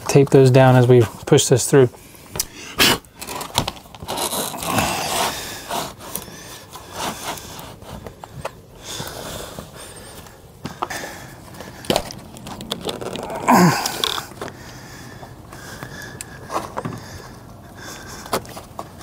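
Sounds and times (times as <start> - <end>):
masking tape handled: 2.4 - 8.6, 11.7 - 14.5
plastic strip scraping and rustling: 2.9 - 8.3, 11.9 - 14.3.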